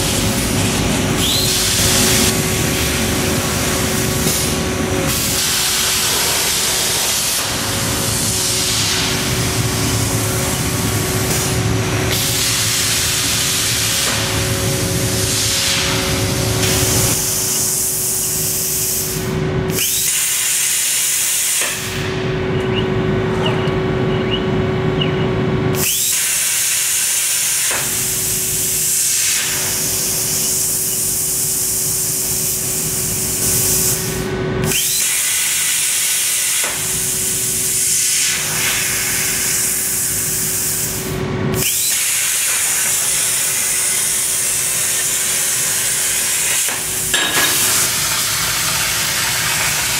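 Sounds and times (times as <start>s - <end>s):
plasma arc hissing: 0.0s - 14.4s, 15.0s - 22.1s, 25.8s - 49.9s
constant low hum: 0.0s - 17.8s, 21.9s - 25.8s.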